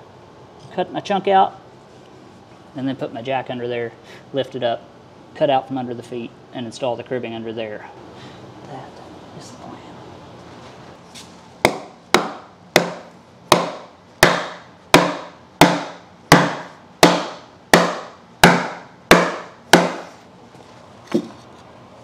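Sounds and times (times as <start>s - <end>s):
hammer striking wooden block: 11.6s - 20.2s.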